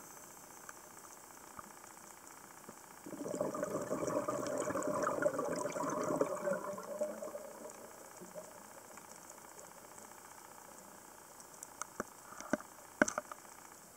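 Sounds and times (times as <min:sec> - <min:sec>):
underwater breath bubbling: 0:03.0 - 0:08.9.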